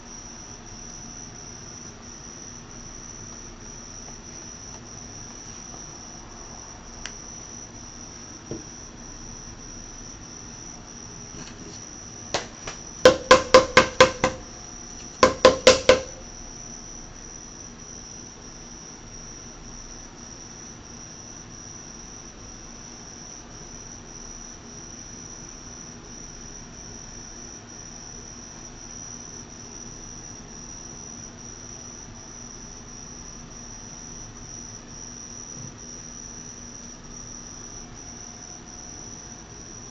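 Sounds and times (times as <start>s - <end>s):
sharp knocks: 12.3s - 16.2s.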